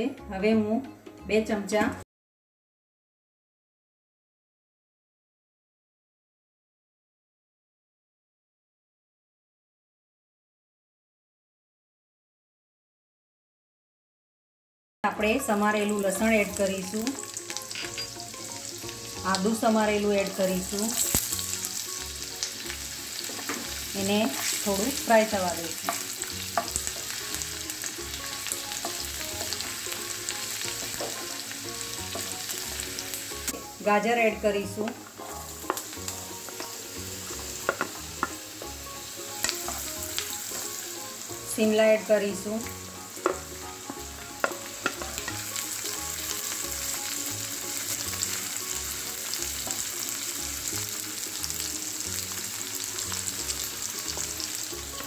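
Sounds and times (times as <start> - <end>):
garlic sizzling in hot oil: 15.2 - 55.0
spatula stirring in a pan: 22.6 - 25.1, 25.7 - 33.0, 39.4 - 40.8, 44.4 - 45.6
spatula stirring in pan: 25.8 - 31.4.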